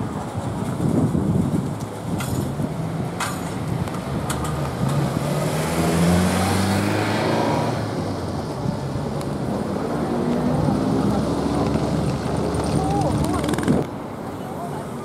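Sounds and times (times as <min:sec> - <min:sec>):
car engine passing by: 0:03.1 - 0:13.8.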